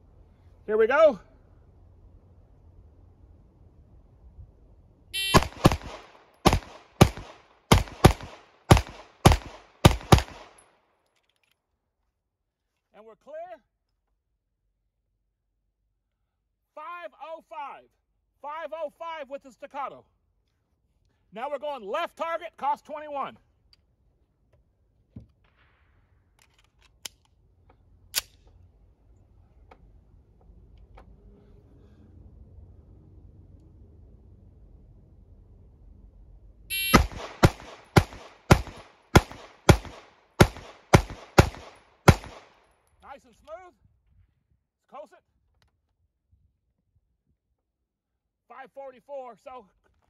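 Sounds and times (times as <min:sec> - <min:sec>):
shot timer beep: 0:05.2 - 0:05.6, 0:36.7 - 0:37.2
pistol shots: 0:05.2 - 0:10.6, 0:36.7 - 0:42.6
pistol metallic clicks: 0:26.4 - 0:27.4, 0:28.1 - 0:28.6, 0:36.8 - 0:43.6.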